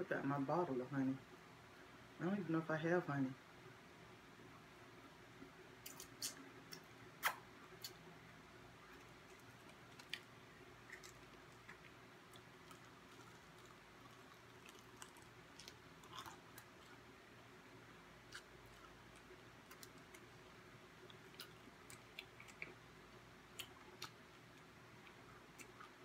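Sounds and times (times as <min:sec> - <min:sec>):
faint chewing of crispy food: 0:05.8 - 0:26.0.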